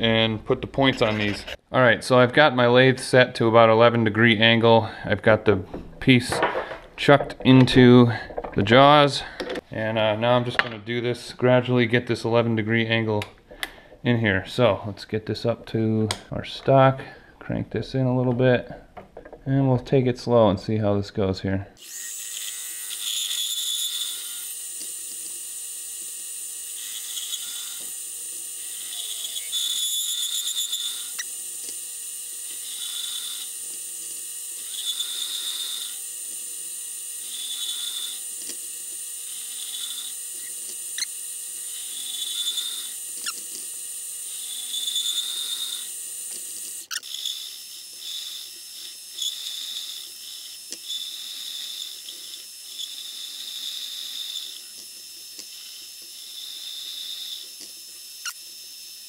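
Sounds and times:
tool cutting metal: 0.8s - 1.6s, 21.8s - 59.0s
lathe motor whine: 21.8s - 59.0s.

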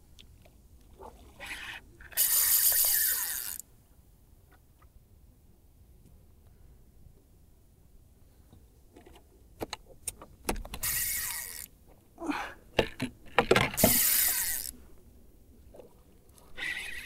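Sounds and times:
fishing reel drag buzzing: 1.4s - 3.6s, 10.8s - 11.7s, 13.8s - 14.8s, 16.6s - 17.0s.

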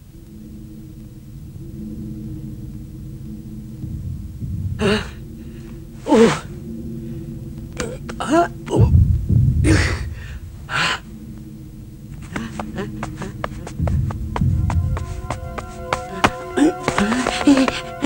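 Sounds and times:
low steady hum: 0.0s - 18.0s
heavy low thump: 3.8s - 6.8s, 8.8s - 10.6s, 12.2s - 18.0s.

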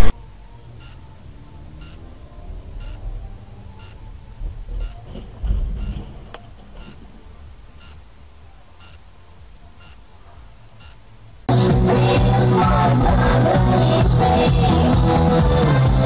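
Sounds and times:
low rumble: 0.0s - 8.6s
electronic beeps: 0.7s - 1.1s, 1.7s - 2.1s, 2.7s - 7.1s, 7.7s - 8.1s, 8.7s - 9.1s, 9.7s - 10.1s, 10.8s - 11.1s.

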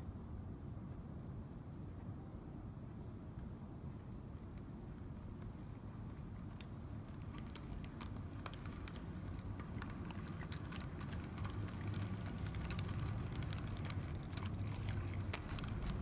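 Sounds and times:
model train wheels rumbling on rail: 5.7s - 16.0s
wheels clicking over rail joints: 6.4s - 16.0s.

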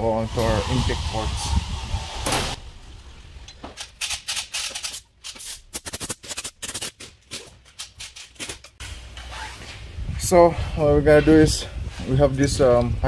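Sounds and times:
air blow gun blasts: 0.3s - 3.0s.

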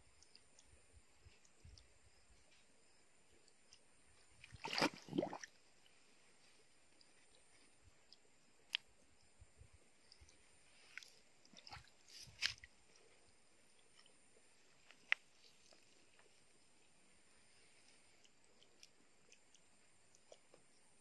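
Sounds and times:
fish gulping at water surface: 4.4s - 5.6s.

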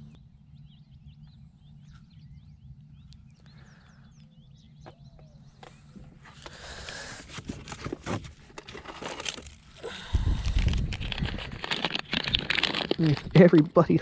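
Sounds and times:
plastic packaging crinkling: 7.3s - 13.8s.

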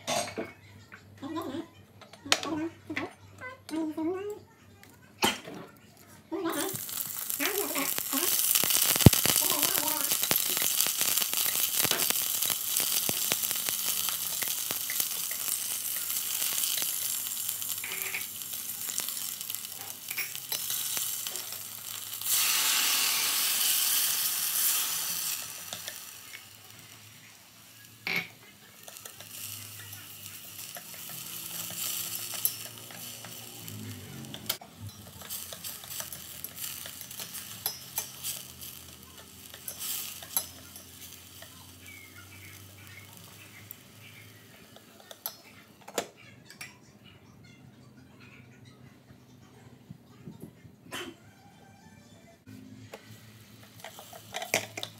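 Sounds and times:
beef sizzling in hot oil: 6.4s - 45.4s, 53.1s - 54.9s.

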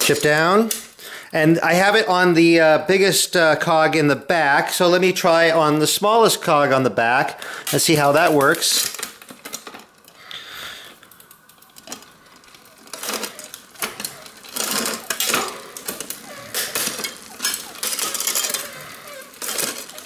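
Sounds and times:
bike chain clicking over gears: 0.0s - 1.1s, 7.5s - 20.0s.

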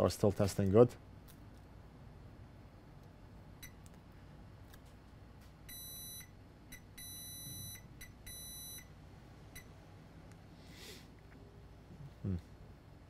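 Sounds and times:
multimeter beeping: 5.7s - 8.9s.

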